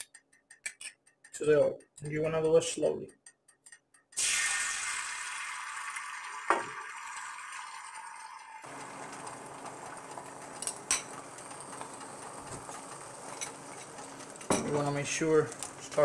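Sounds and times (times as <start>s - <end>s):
eggs sizzling in oil: 4.1s - 16.0s.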